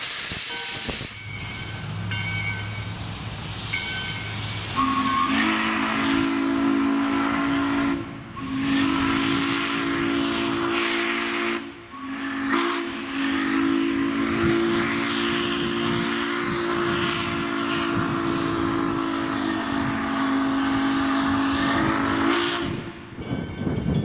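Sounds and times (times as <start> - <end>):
steam hissing: 0.0 - 23.4
steam whistle chord: 4.7 - 23.0.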